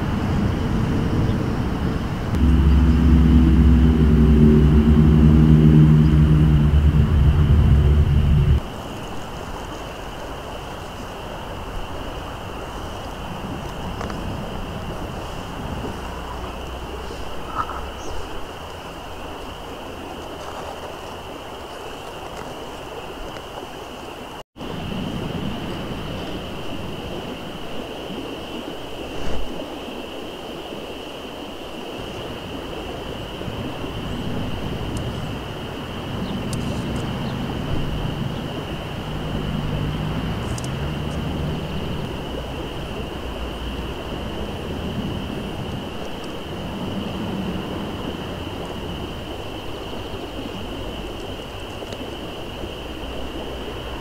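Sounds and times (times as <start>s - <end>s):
constant high-pitched tone: 2.3s - 8.7s
thin high-pitched drone: 2.4s - 8.6s
river water rushing: 18.3s - 54.0s.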